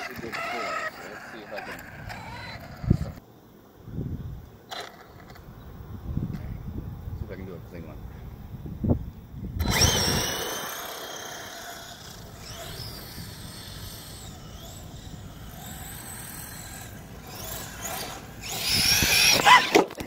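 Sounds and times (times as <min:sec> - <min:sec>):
electric motor whining: 0:00.0 - 0:03.2, 0:09.6 - 0:20.0
tyres scrabbling through dirt: 0:00.0 - 0:03.2, 0:09.6 - 0:20.0.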